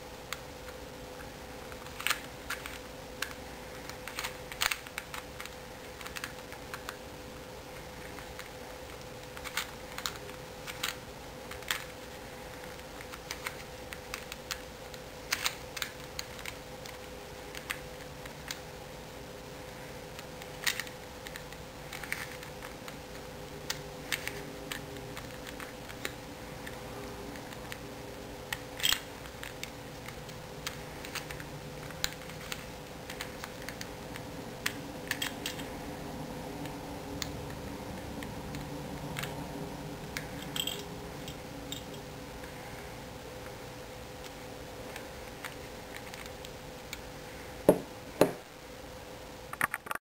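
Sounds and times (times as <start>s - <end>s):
plastic puzzle pieces clicking: 1.7s - 7.0s, 7.8s - 18.6s, 20.2s - 27.8s, 28.5s - 35.7s.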